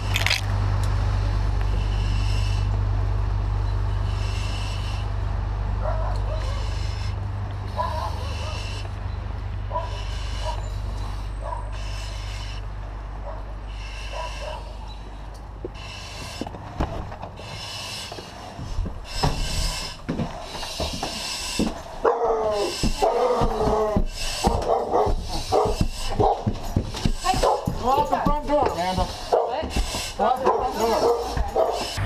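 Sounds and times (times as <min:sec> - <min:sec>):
breathing through a mask: 0:01.7 - 0:02.9, 0:03.8 - 0:32.0
dog barking: 0:05.8 - 0:06.8, 0:07.7 - 0:08.8, 0:09.7 - 0:10.7, 0:11.4 - 0:11.7, 0:13.2 - 0:14.8, 0:22.0 - 0:26.6, 0:27.3 - 0:27.9, 0:28.7 - 0:32.0
footsteps: 0:14.2 - 0:32.0.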